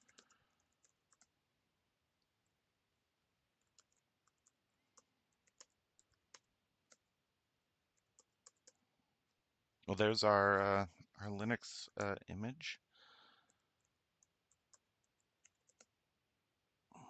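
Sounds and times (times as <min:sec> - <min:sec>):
computer keyboard keystrokes: 0:00.0 - 0:01.3, 0:03.6 - 0:07.0, 0:08.0 - 0:08.8, 0:13.8 - 0:15.9.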